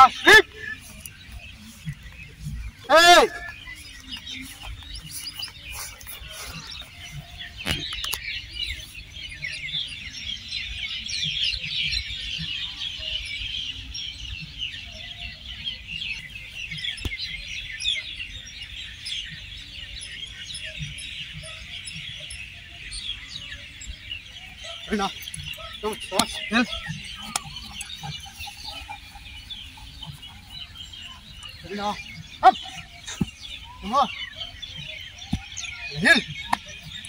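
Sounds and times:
small birds chirping: 0.0 - 37.0.

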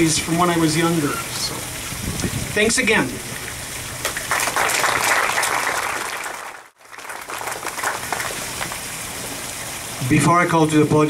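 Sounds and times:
audience applauding: 4.0 - 9.0.

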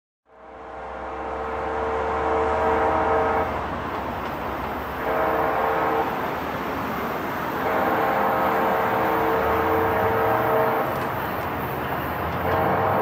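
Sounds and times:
train horn blasts: 0.2 - 3.7, 5.0 - 6.4, 7.5 - 11.2, 12.3 - 13.0
train rumble: 0.3 - 13.0.

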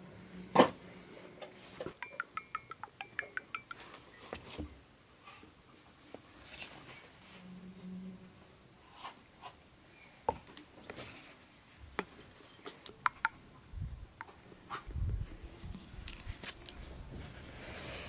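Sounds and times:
plastic bottle and glass clicking: 1.9 - 3.9.

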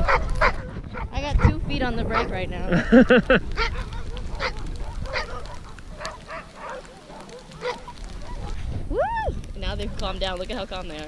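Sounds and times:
dogs yelping and barking: 0.0 - 1.5, 3.5 - 8.8.

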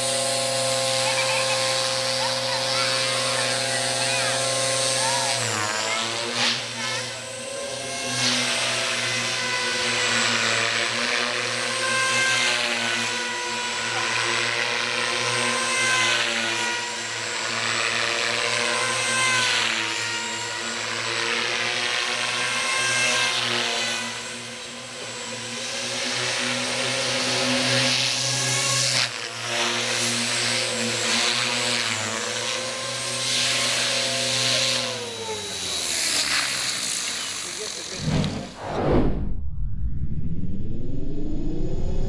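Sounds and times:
rc helicopter motor and rotor whine: 0.0 - 38.1.

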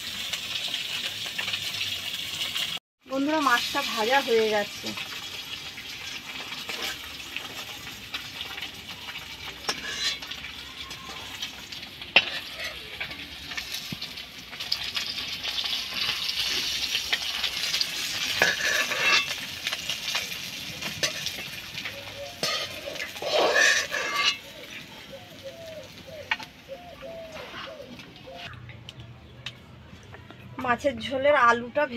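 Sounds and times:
fish sizzling in hot oil: 0.0 - 27.3
metal spatula scraping pan: 6.6 - 7.1, 9.5 - 10.5, 12.1 - 13.3, 15.9 - 20.2, 20.8 - 24.5.

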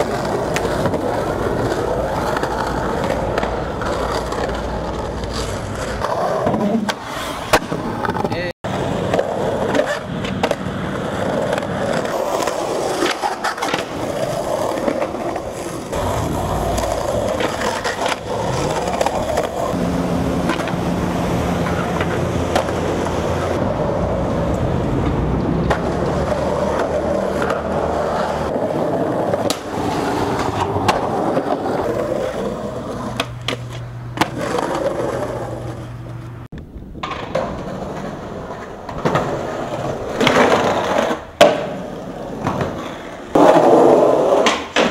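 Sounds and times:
skateboard tail popping: 0.0 - 8.4, 20.4 - 44.9
skateboard slapping down: 0.0 - 19.8, 20.4 - 35.8, 36.9 - 44.9
skateboard wheels rolling on concrete: 0.0 - 44.9.

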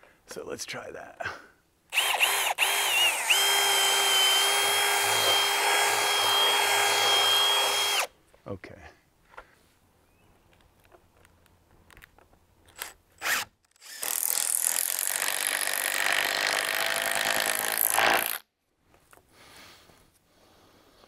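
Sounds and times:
cordless drill whirring: 1.9 - 8.1.

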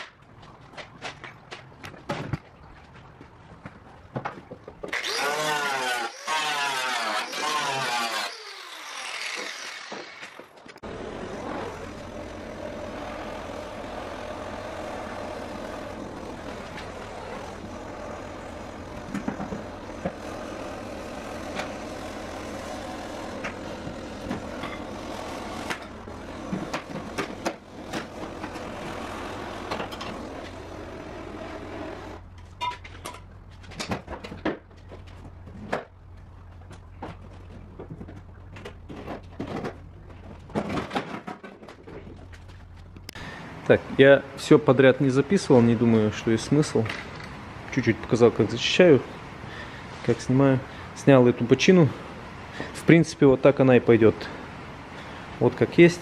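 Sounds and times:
angle grinder winding down: 5.0 - 26.8, 27.7 - 32.3
steady machine hum: 10.8 - 32.5.

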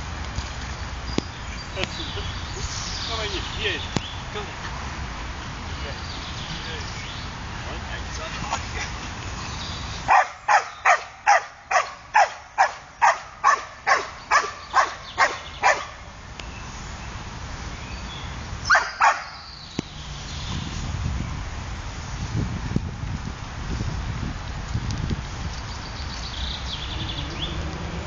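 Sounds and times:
dog barking: 10.1 - 16.0, 18.7 - 19.4.

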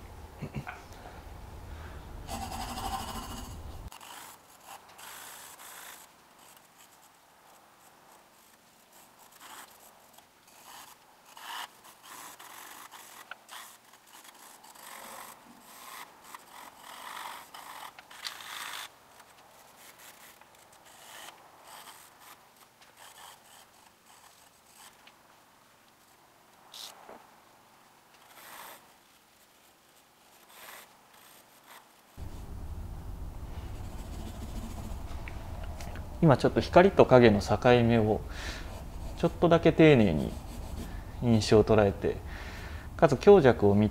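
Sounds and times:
pencil scratching on paper: 2.3 - 25.0, 28.2 - 32.5, 33.5 - 35.3, 37.3 - 41.9.

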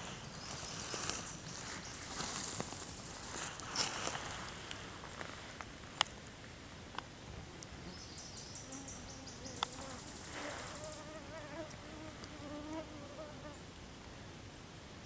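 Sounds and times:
flying insect buzzing: 8.6 - 13.6.

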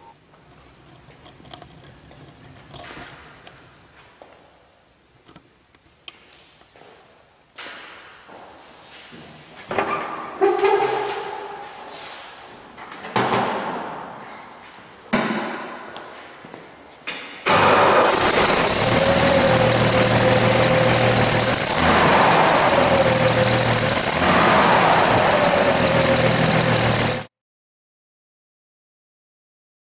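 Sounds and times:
truck engine revving: 17.5 - 27.3.

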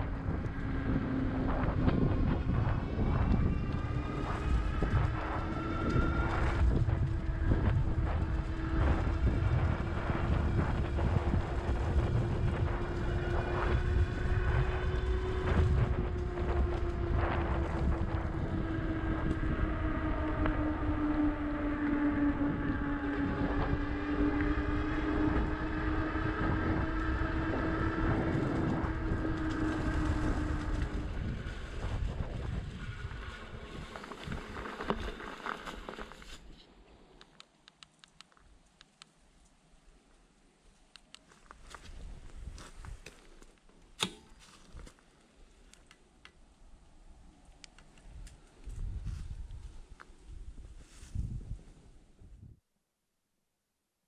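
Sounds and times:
electric motor whining: 0.0 - 36.5
wind rushing over microphone: 0.0 - 36.5, 47.8 - 52.6.

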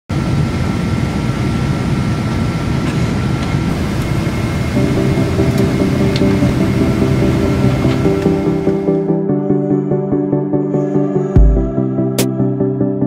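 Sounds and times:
airliner cabin noise: 0.1 - 9.0
music: 4.5 - 13.0.

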